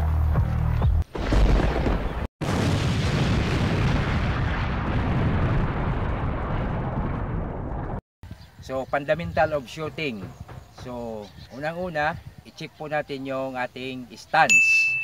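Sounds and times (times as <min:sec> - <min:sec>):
explosion blast with rumble: 0:01.1 - 0:08.0.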